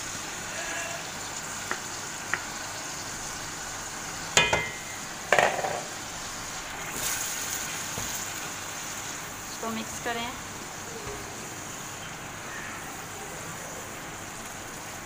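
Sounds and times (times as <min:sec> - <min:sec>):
chicken sizzling in hot oil: 0:00.0 - 0:15.0
utensil tapping pan: 0:01.6 - 0:02.5, 0:04.4 - 0:06.0.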